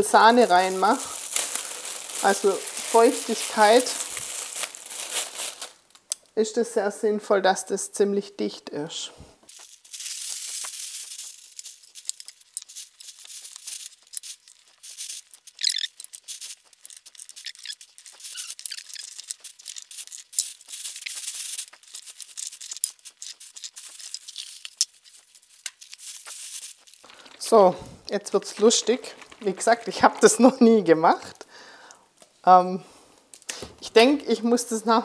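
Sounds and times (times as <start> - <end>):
vegetable pieces rattling: 0.0 - 5.8, 9.6 - 30.7
plastic bag crinkling: 0.0 - 6.1, 9.4 - 31.4.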